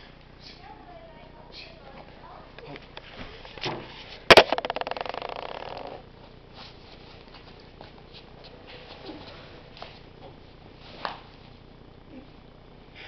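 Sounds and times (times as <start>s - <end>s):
pulsing rattle: 4.3s - 6.0s.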